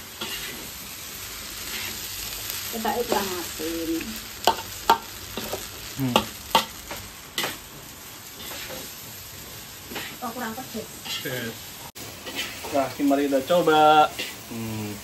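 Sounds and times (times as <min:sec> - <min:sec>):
rice sizzling in a wok: 0:00.0 - 0:15.0
spatula scraping rice: 0:00.2 - 0:00.8, 0:01.6 - 0:02.2.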